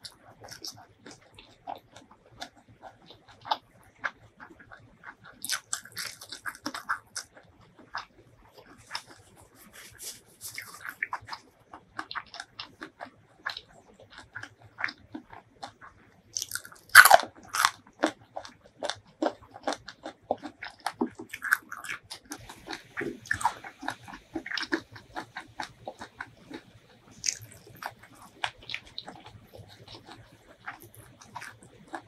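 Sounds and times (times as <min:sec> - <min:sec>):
chewing with wet mouth clicks: 0:00.0 - 0:32.0
crunchy bite into cucumber: 0:16.4 - 0:32.0.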